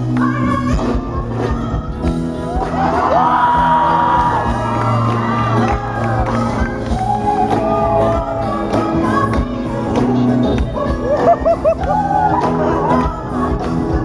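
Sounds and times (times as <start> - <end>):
woman singing: 0.0 - 4.3, 5.6 - 14.0
live band playing: 0.0 - 14.0
crowd shouting and whooping: 2.4 - 9.4, 10.8 - 14.0.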